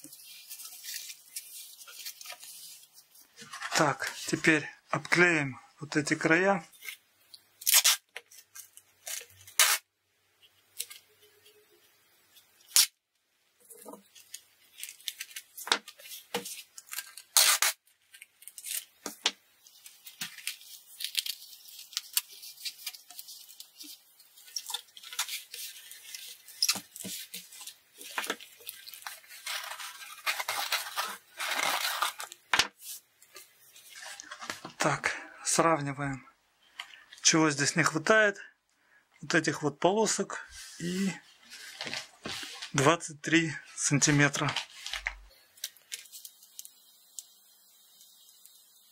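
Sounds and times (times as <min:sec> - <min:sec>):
packing tape ripping: 0:07.6 - 0:09.8, 0:12.7 - 0:13.0, 0:14.1 - 0:32.6.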